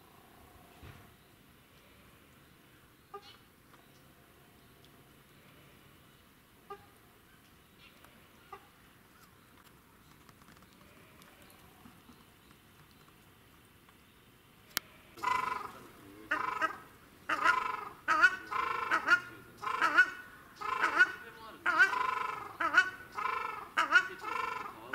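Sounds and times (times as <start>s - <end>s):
faint outdoor background: 0.0s - 24.9s
waterfowl honking: 15.2s - 24.9s.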